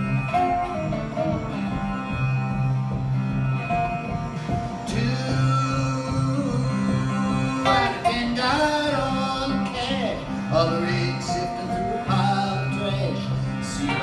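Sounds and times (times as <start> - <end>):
slide guitars playing: 0.0 - 14.0
man singing without words: 4.8 - 14.0.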